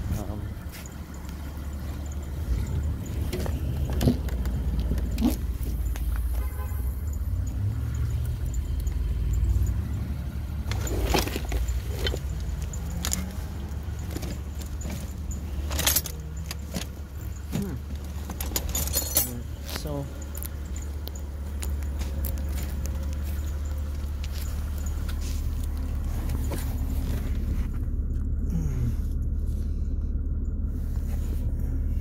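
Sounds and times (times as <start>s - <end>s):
low rumble: 0.0s - 32.0s
hand tools clinking: 8.4s - 27.2s
metal clanks: 10.6s - 27.2s.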